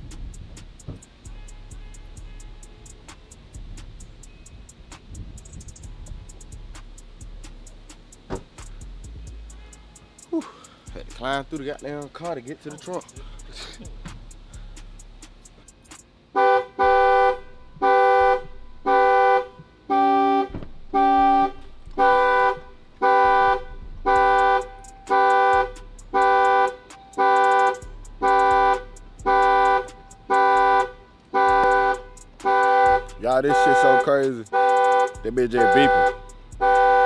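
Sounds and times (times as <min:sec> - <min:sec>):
car alarm horn honks: 0:01.2 - 0:03.4, 0:09.3 - 0:10.4, 0:16.3 - 0:37.0.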